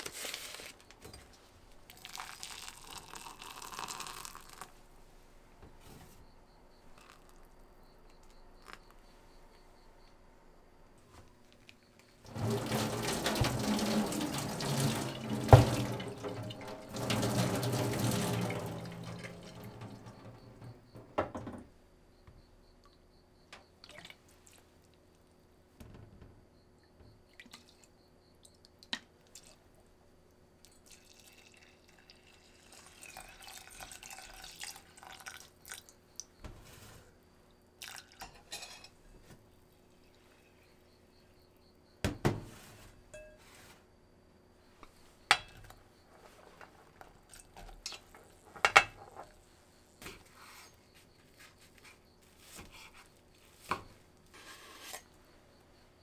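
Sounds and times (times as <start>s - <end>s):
liquid pouring: 1.9s - 4.7s, 12.3s - 20.6s, 30.7s - 35.9s, 37.8s - 38.2s
knocks of a pot: 45.3s - 45.7s.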